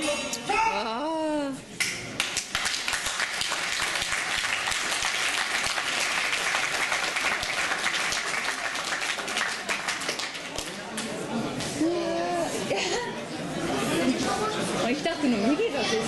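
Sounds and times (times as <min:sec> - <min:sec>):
crowd applauding: 0:02.2 - 0:11.2.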